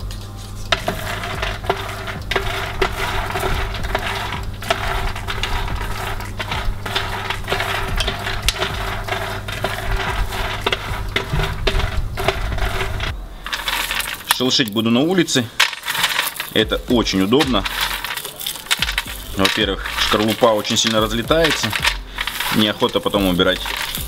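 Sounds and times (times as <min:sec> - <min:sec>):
low hum: 0:00.0 - 0:14.8
peanuts rattling on metal tray: 0:00.0 - 0:24.0.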